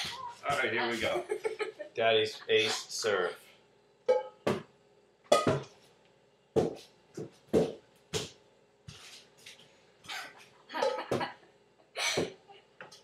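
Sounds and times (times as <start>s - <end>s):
ball hit off frying pan: 4.1s - 4.7s, 5.3s - 5.7s.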